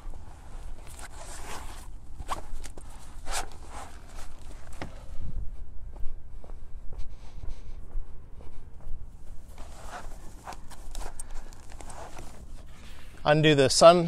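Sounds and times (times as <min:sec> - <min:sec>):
fabric rustling: 0:00.0 - 0:05.2, 0:09.1 - 0:13.3
footsteps on pavement: 0:01.7 - 0:13.5.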